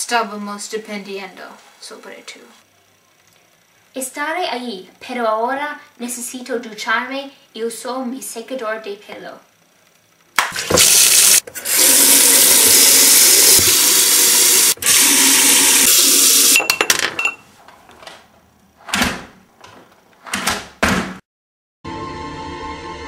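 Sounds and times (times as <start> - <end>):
tap water running into sink: 10.6 - 16.6.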